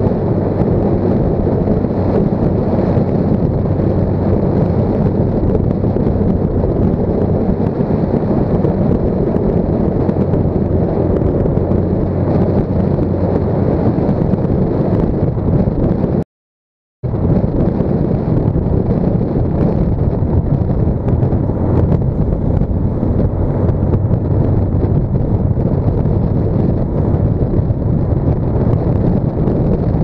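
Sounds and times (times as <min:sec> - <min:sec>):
road and drivetrain noise: 0:00.0 - 0:16.2, 0:17.1 - 0:30.0
wind buffeting microphone: 0:00.0 - 0:16.2, 0:17.0 - 0:30.0
low hum: 0:17.0 - 0:30.0.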